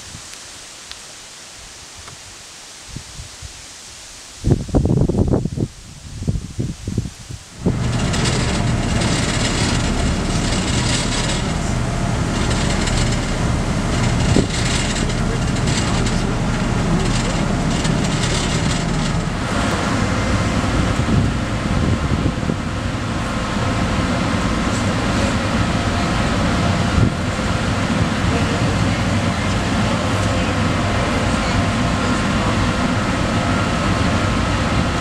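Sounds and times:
wind hiss: 0:00.0 - 0:35.0
low engine drone: 0:07.5 - 0:35.0.

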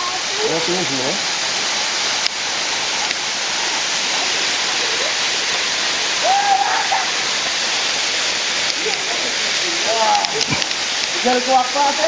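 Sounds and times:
waterfall rushing: 0:00.0 - 0:12.0.

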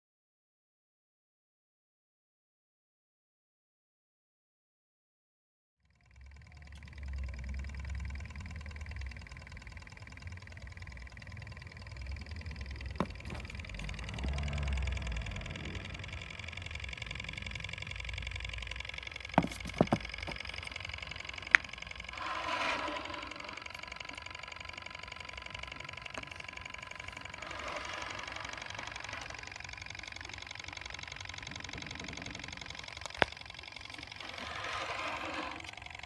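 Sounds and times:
stirling engine ticking: 0:05.9 - 0:36.0
sharp clicks: 0:06.3 - 0:36.0.

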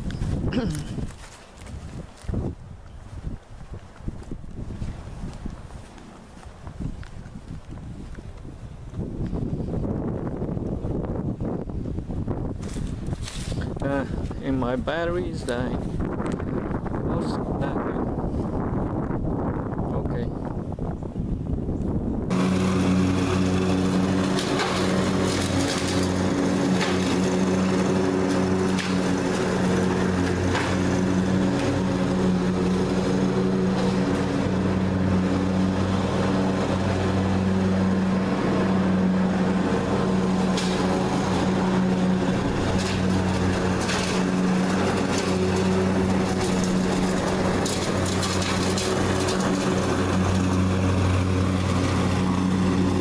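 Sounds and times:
riding lawn mower engine: 0:00.0 - 0:53.0.

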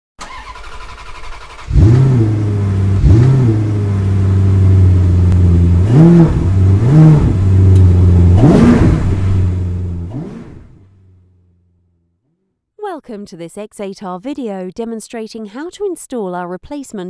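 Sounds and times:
engine throttle blips: 0:00.2 - 0:12.0
car engine idling: 0:00.2 - 0:12.1.

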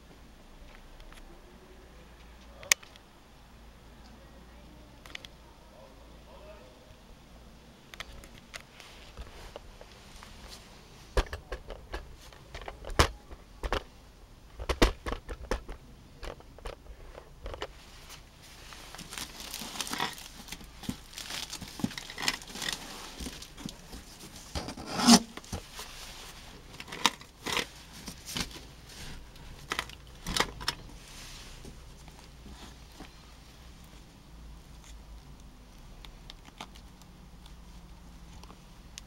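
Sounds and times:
cardboard flaps rustling: 0:17.6 - 0:30.3
plastic wrapping crinkling and tearing: 0:18.0 - 0:30.5.

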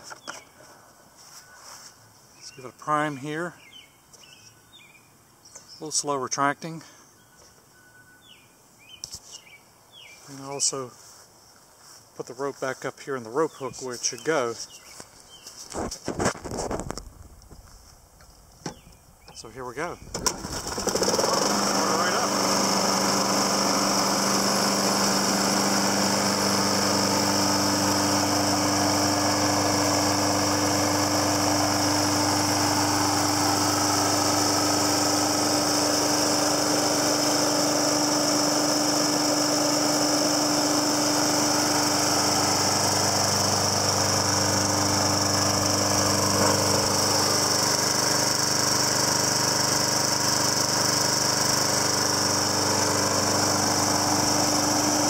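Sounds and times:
lawn mower engine running: 0:18.7 - 0:55.0.

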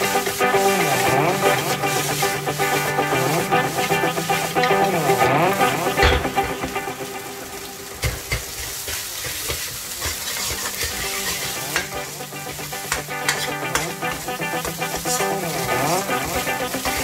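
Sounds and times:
food sizzling in wok: 0:00.0 - 0:17.0.

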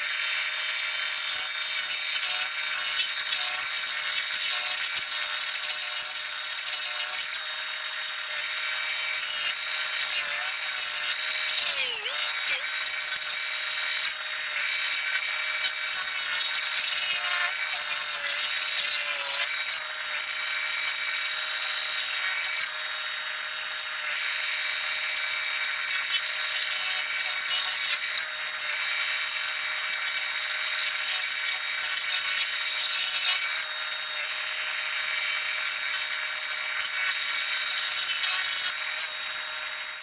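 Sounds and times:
stump grinder grinding: 0:00.0 - 0:40.0.

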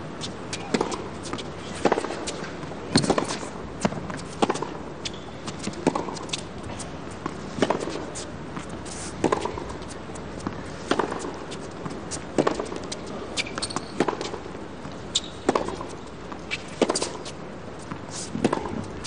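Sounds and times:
rackets striking tennis ball: 0:00.5 - 0:04.9, 0:05.6 - 0:19.0
tennis ball bouncing: 0:00.5 - 0:19.0.

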